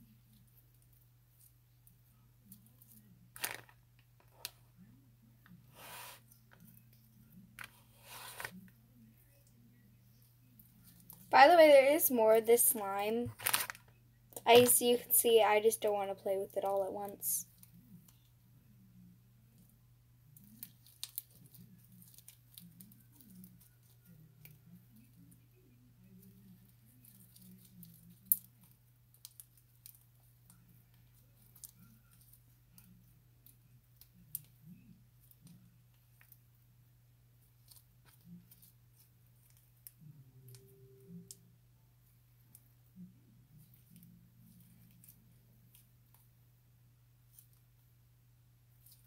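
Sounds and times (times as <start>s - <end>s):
slime crackling and tearing: 20.4s - 24.0s
slime clicking and crackling: 20.4s - 24.6s, 26.2s - 36.4s.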